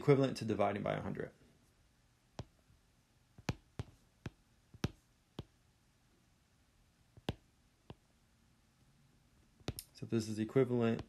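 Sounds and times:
stylus tapping on tablet screen: 0:02.3 - 0:05.6, 0:07.1 - 0:08.1, 0:09.6 - 0:09.9.

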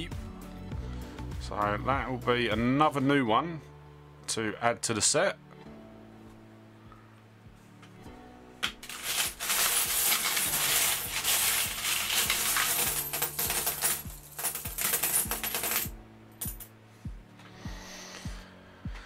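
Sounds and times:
coins rattling and clinking: 0:08.6 - 0:16.7.

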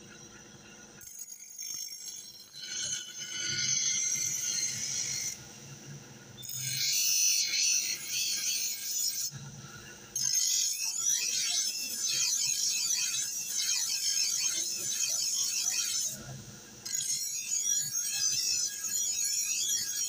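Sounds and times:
knife scraping on grinding wheel: 0:01.0 - 0:05.4, 0:06.4 - 0:09.4, 0:10.2 - 0:20.0.

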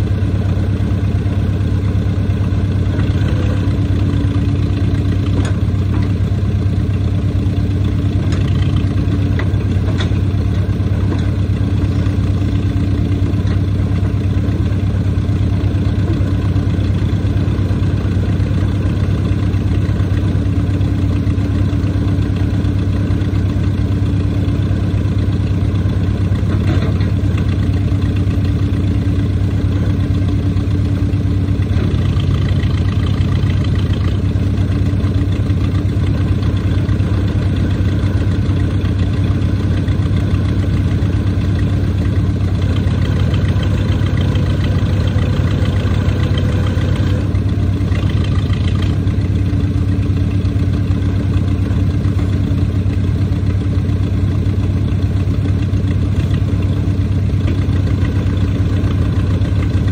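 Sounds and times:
backhoe engine running near idle: 0:00.0 - 0:59.9.

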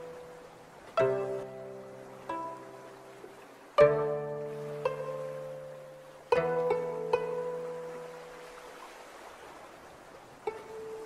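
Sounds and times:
plucked string notes: 0:00.0 - 0:08.6, 0:10.4 - 0:11.0.

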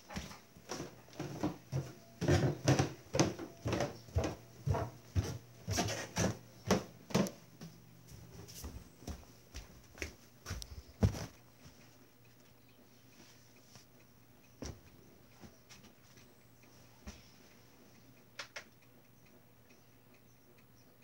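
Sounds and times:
footsteps on wooden floor: 0:00.0 - 0:11.8, 0:14.6 - 0:16.2.

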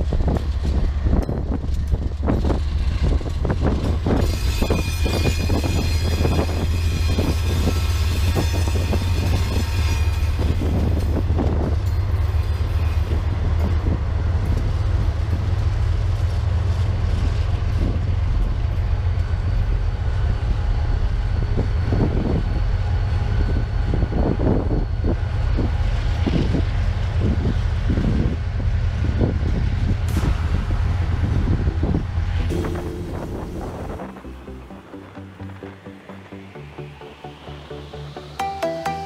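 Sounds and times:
train wheels clacking on rail joints: 0:00.0 - 0:19.9
diesel locomotives rumbling: 0:00.0 - 0:39.0.

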